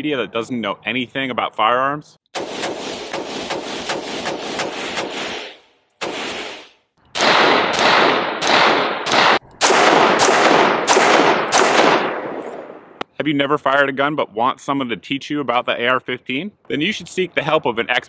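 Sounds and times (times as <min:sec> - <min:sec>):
rifle shots: 0:02.4 - 0:13.0.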